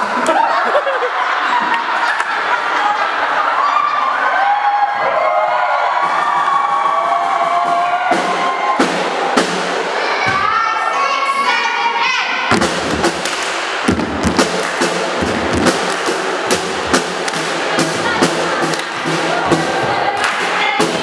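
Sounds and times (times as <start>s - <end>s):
people shouting and cheering: 0.0s - 21.0s
music: 6.0s - 10.0s, 12.5s - 21.0s
rhythmic hand claps: 12.5s - 21.0s.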